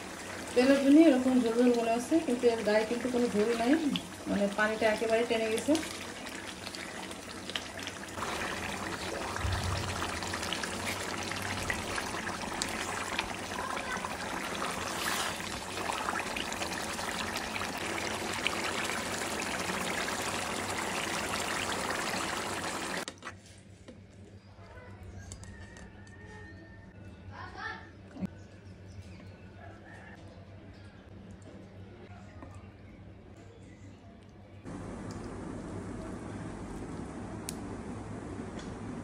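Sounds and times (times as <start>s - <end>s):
curry bubbling in a pan: 0.0s - 23.3s.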